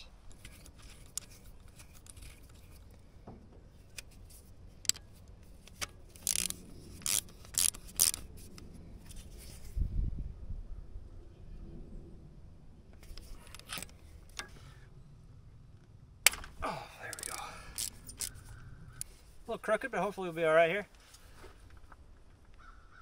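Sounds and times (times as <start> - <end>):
ratchet wrench clicking: 4.8 - 8.3, 17.1 - 19.1.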